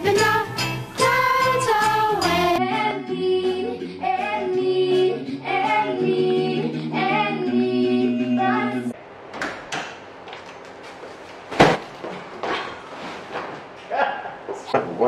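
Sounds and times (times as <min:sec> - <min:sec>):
girl singing lead: 0:00.0 - 0:09.0
group singing harmony: 0:00.0 - 0:09.0.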